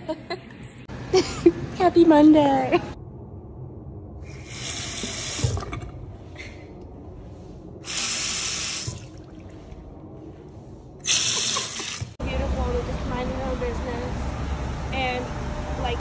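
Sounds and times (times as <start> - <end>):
faucet water running into sink: 11.1 - 12.1.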